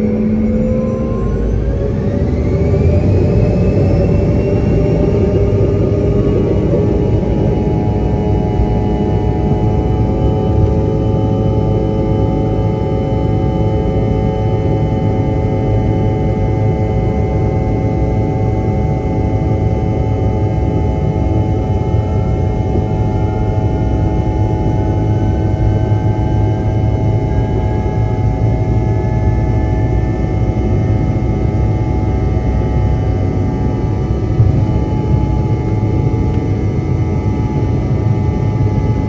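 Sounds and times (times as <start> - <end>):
engine tone rising in pitch: 0.0 - 37.8
jet engines buzzing in cabin: 0.0 - 39.0.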